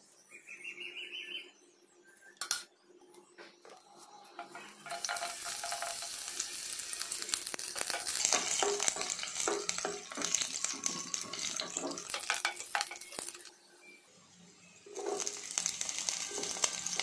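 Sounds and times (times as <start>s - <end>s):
garlic sizzling in oil: 3.9s - 13.5s, 14.9s - 17.0s
spatula clicking and scraping: 4.3s - 13.5s.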